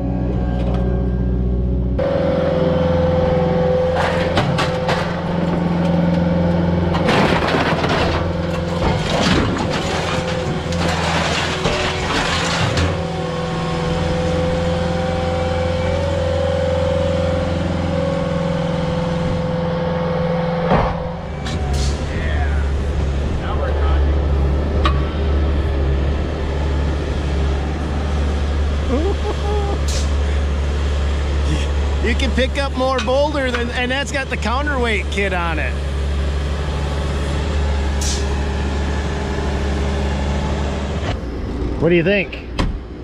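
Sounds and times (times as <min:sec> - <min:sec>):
skid steer engine running: 0:00.0 - 0:43.0
debris crashing into metal truck box: 0:03.9 - 0:13.3.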